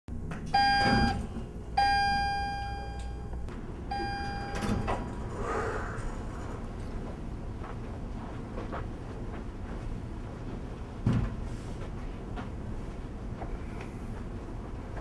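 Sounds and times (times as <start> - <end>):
low hum: 0.1 - 5.4
elevator chime ringing: 0.5 - 4.9.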